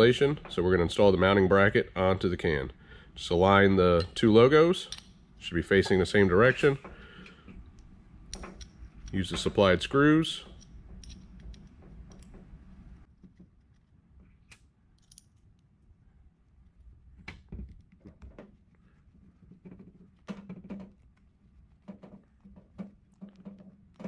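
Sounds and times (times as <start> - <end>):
small screws clicking and tapping: 10.6 - 12.4, 14.5 - 15.6.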